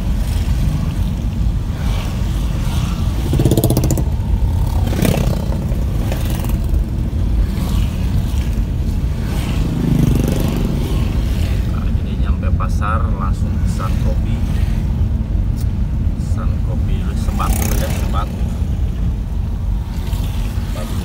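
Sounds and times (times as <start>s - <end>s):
vehicle driving on wet road: 0.0s - 12.0s
motorcycle engines passing: 0.0s - 21.0s.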